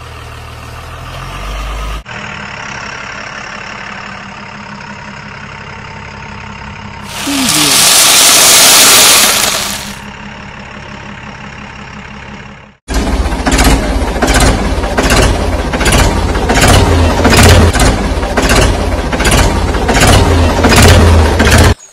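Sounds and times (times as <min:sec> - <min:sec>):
low engine hum: 0:00.0 - 0:21.9
tractor engine pulsing: 0:02.2 - 0:21.8
soil pouring hiss: 0:07.1 - 0:10.0.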